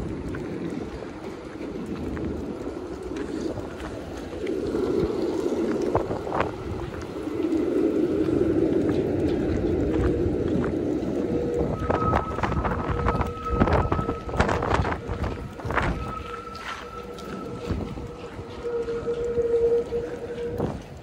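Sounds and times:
rumble of passing traffic: 0.0 - 21.0.

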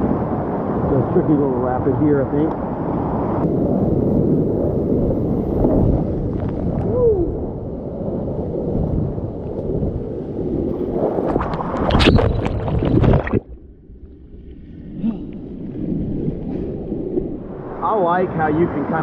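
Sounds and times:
muffled underwater rumble: 3.6 - 17.8.

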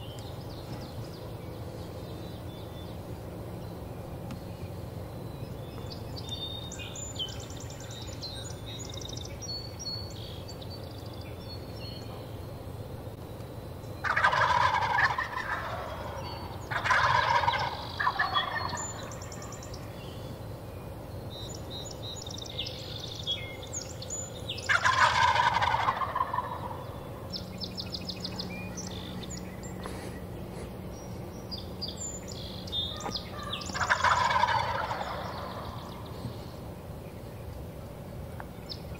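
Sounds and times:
songbirds chirping faintly: 0.0 - 38.9
turkeys gobbling: 14.0 - 19.8, 24.6 - 27.0, 32.9 - 36.3.

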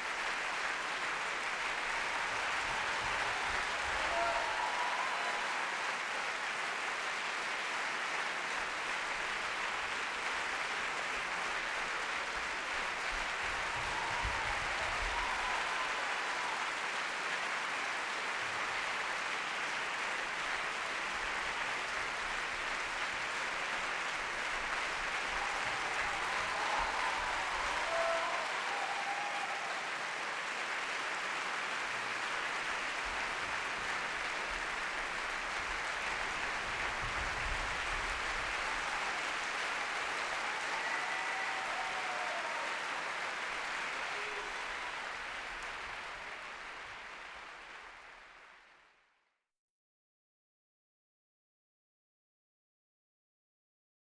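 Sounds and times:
audience applauding: 0.0 - 49.2
faint calls from audience: 2.8 - 6.0, 25.4 - 30.0, 39.9 - 45.1.

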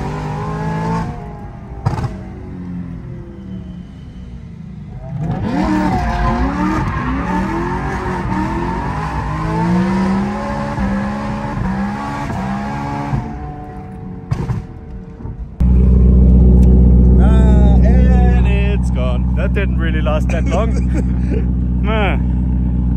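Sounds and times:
car engine revving: 0.0 - 3.8, 4.6 - 22.9
exhaust idling: 15.6 - 22.9.

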